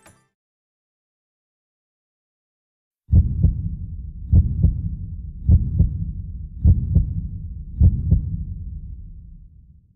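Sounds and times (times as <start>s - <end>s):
heartbeat thumps: 3.1s - 9.5s
low rumble: 3.1s - 9.9s.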